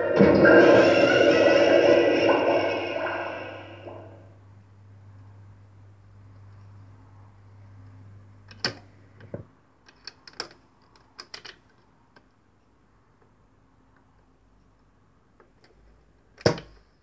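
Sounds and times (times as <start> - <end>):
low steady hum: 0.0 - 9.9.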